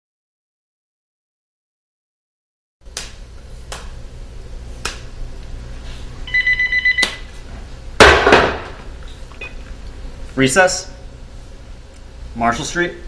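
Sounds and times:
telephone ringing: 0:06.3 - 0:07.0.

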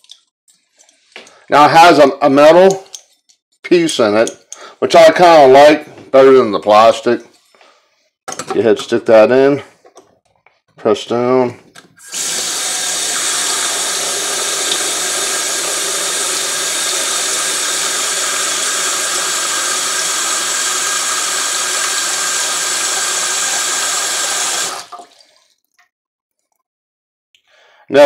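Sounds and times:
faucet running into steel sink: 0:12.0 - 0:25.3.

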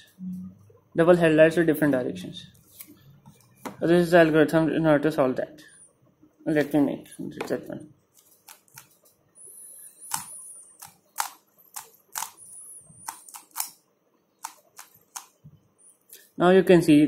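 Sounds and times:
puzzle cube clicking: 0:10.1 - 0:12.4, 0:13.0 - 0:13.8, 0:14.4 - 0:15.4.

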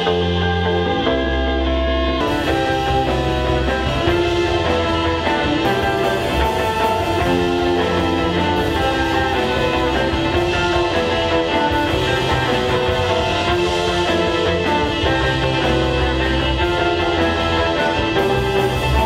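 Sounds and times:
held keyboard notes: 0:00.0 - 0:19.0
rock guitar: 0:00.0 - 0:19.0.

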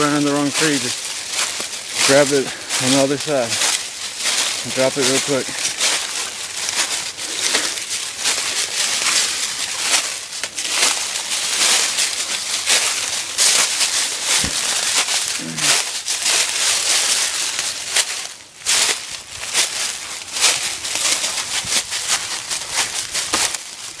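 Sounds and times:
footsteps crunching dry leaves: 0:00.0 - 0:24.0
short low vocal sound: 0:15.4 - 0:15.8.

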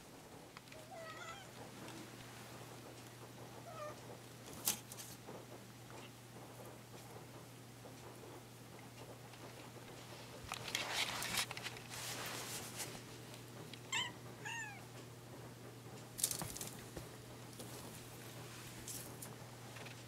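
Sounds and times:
cat meowing: 0:00.8 - 0:01.5, 0:13.9 - 0:14.8
bamboo blind rustling and rattling: 0:01.5 - 0:08.0, 0:09.0 - 0:13.7, 0:16.0 - 0:20.0.

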